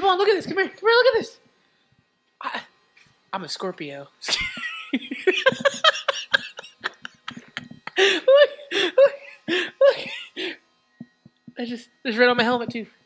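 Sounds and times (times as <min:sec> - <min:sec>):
people laughing and talking: 0:04.3 - 0:10.6.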